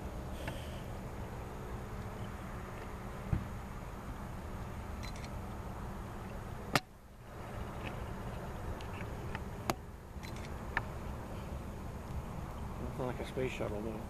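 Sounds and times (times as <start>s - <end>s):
faint insect chirps: 4.9s - 6.5s, 10.1s - 13.5s.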